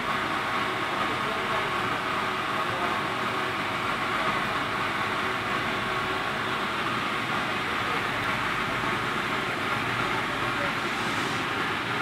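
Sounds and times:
steam boiler rushing: 0.0s - 12.0s.

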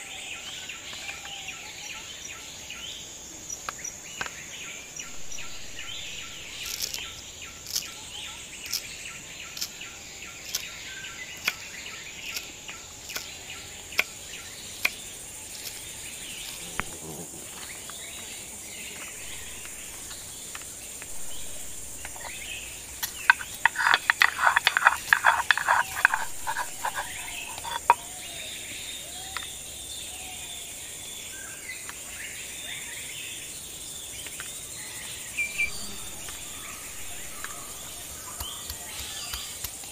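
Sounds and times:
insects trilling: 0.0s - 39.9s
bird chirps: 3.8s - 33.4s, 34.0s - 39.9s
hand tool striking food: 38.3s - 39.9s.

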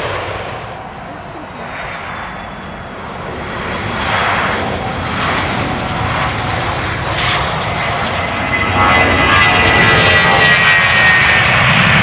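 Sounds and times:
jet engines roaring: 0.0s - 12.0s.

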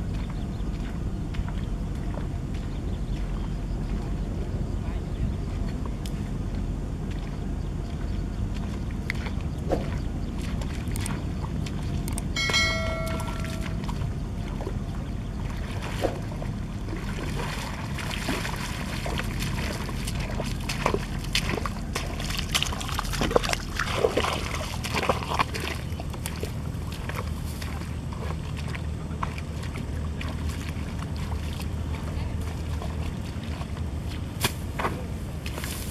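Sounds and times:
footsteps splashing through water: 0.0s - 4.3s, 5.4s - 35.9s
short pitched tone: 12.4s - 14.0s.

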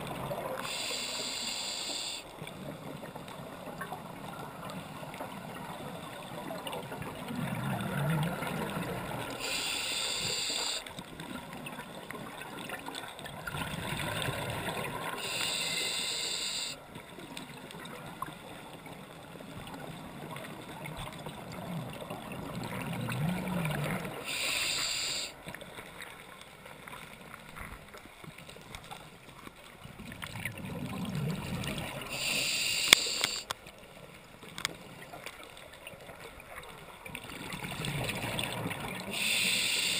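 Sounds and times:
diver breathing through regulator: 0.6s - 2.3s, 9.4s - 10.8s, 15.2s - 16.8s, 24.2s - 25.4s, 32.1s - 33.5s, 39.1s - 39.9s.

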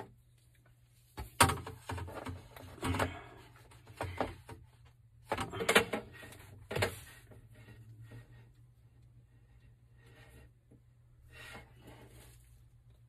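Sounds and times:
plastic pipes knocking and scraping: 1.1s - 8.4s.

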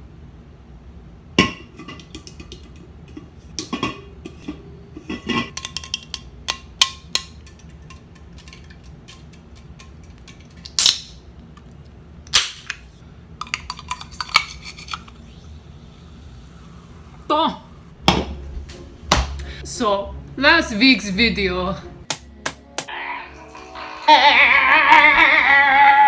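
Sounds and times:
can opening hiss: 10.6s - 11.2s.

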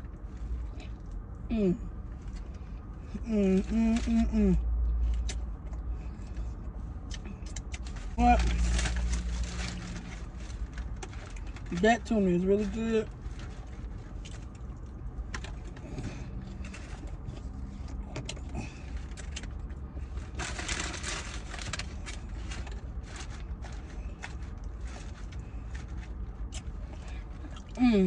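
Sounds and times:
chewing and mouth noises: 24.2s - 27.8s.

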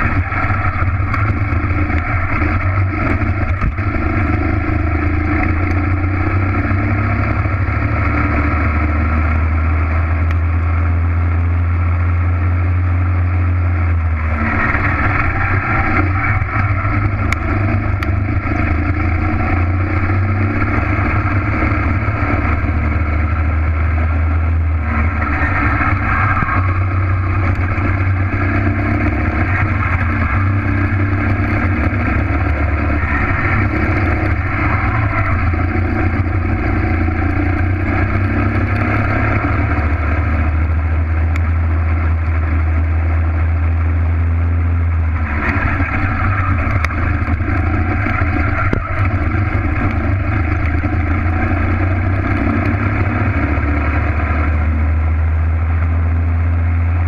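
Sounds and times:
kart engine running hard: 0.0s - 57.0s.

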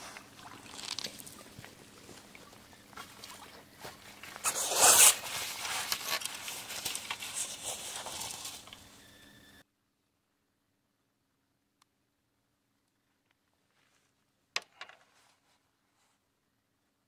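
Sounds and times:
fish thrashing and splashing in net: 0.0s - 8.8s
water running off mesh: 0.0s - 8.9s.

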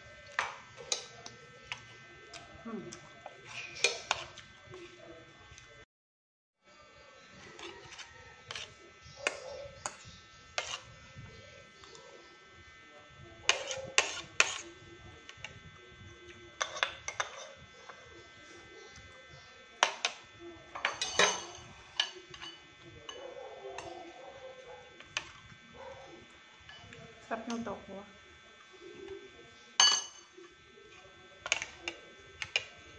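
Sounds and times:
cutlery clinking on a plate: 3.5s - 4.4s, 16.6s - 17.5s, 20.8s - 24.0s, 29.8s - 30.4s, 31.4s - 32.7s.

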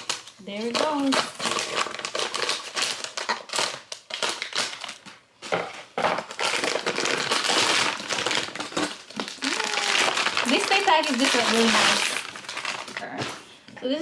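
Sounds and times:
plastic bag crinkling: 0.0s - 5.2s, 6.2s - 13.6s.

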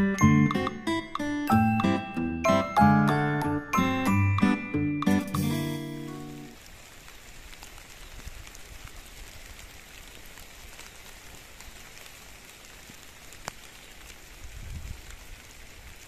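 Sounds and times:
steady field hiss: 0.0s - 16.0s
wind rumble on microphone: 14.2s - 16.0s.

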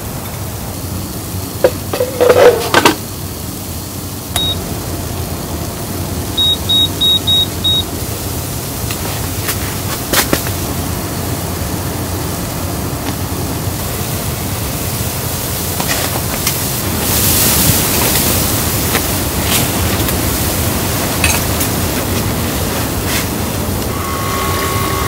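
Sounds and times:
blizzard wind rushing: 7.9s - 25.0s.

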